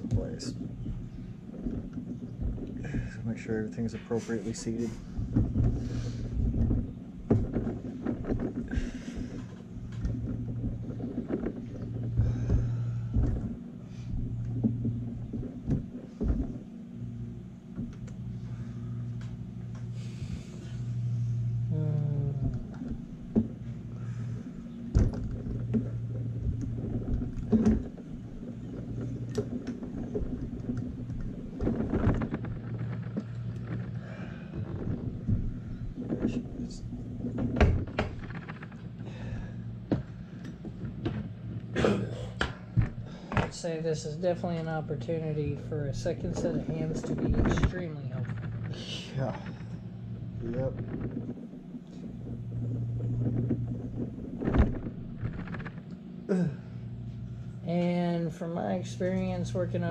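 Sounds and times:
low hum and rumble: 0:00.0 - 0:59.9.

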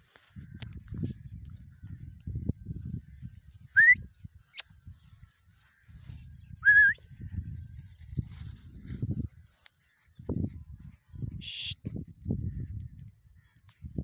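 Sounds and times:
short rising whistles: 0:03.7 - 0:04.6
feet rustling through crop: 0:07.1 - 0:10.5.

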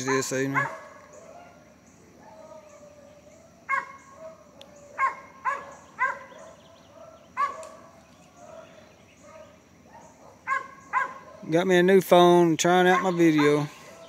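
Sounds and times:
dog barking: 0:00.0 - 0:01.6, 0:03.7 - 0:11.6, 0:12.9 - 0:14.0.

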